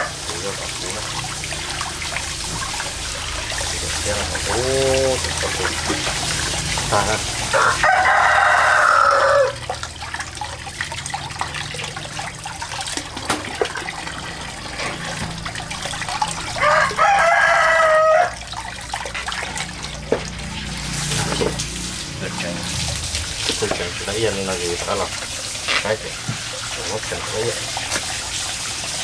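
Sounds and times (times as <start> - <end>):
running water: 0.0 - 29.0
rooster crowing: 7.5 - 9.6, 16.4 - 18.4.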